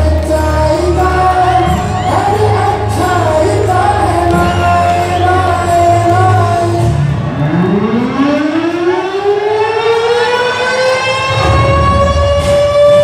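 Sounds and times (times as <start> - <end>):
song with singing and bass: 0.0 - 9.0
siren winding up: 7.3 - 13.0.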